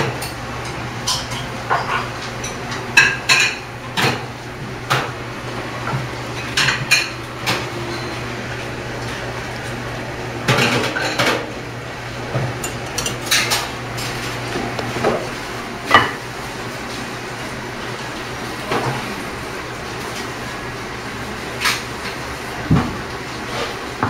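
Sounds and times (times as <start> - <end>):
plates and cutlery clinking: 6.4 - 8.3, 12.3 - 15.3.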